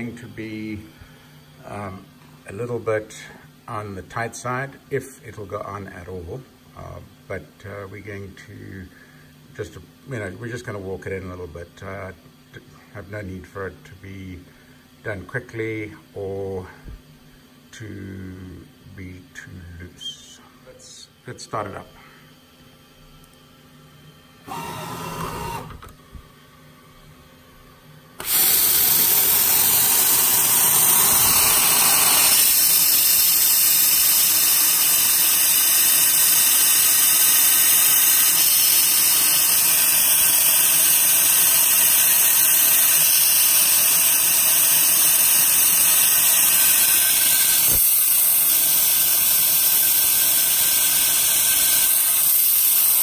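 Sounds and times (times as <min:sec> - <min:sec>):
lathe machine noise: 0:24.5 - 0:25.9, 0:28.2 - 0:53.0
lathe spindle running: 0:24.5 - 0:26.0, 0:28.2 - 0:53.0
coolant spray hissing: 0:28.3 - 0:53.0.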